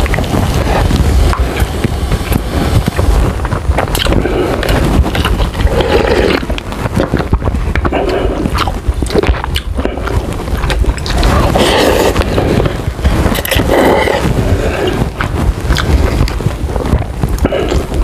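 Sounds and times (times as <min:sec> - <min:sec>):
low rumble: 0:00.0 - 0:18.0
slurping noodle soup: 0:03.8 - 0:18.0.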